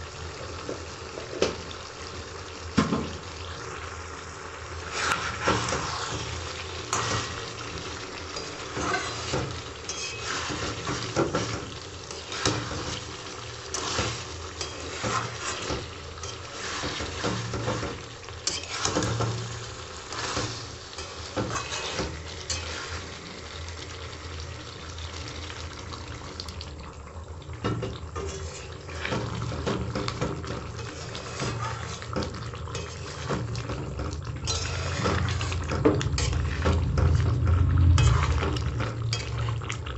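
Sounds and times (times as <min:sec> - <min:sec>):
gravy sizzling and bubbling: 0:00.0 - 0:39.9
spatula scraping metal pan: 0:04.9 - 0:07.6, 0:08.3 - 0:23.1, 0:28.2 - 0:33.8, 0:34.4 - 0:37.3, 0:37.9 - 0:39.7.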